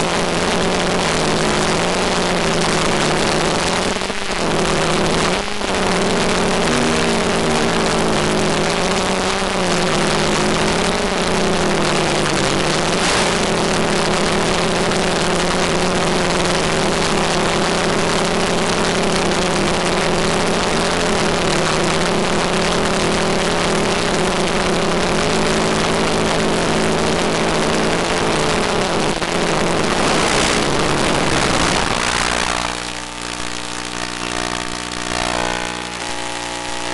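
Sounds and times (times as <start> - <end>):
multicopter propellers whirring: 6.0 - 21.4, 27.8 - 33.4.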